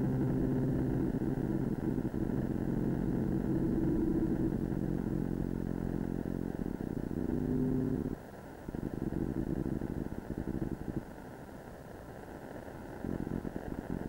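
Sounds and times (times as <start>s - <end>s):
low buzzing electronic drone: 0.0s - 8.2s, 8.8s - 11.0s.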